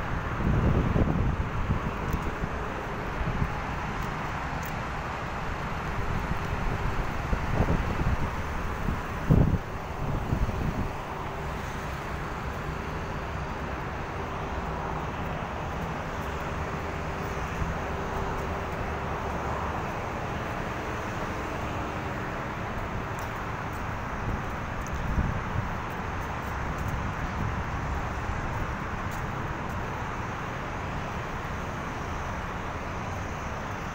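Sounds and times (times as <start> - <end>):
wind buffeting microphone: 0.0 - 4.9, 5.5 - 12.6, 22.8 - 30.0
road traffic: 0.0 - 33.9.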